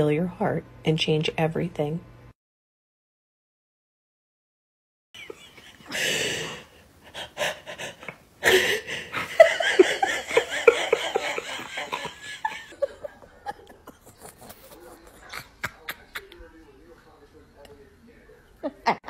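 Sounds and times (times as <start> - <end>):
breathy huff: 5.8 - 9.4.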